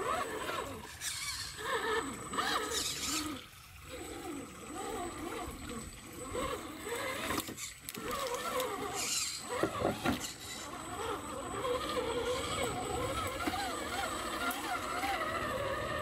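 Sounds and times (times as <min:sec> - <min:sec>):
toy car electric motor whining: 0:00.0 - 0:16.0.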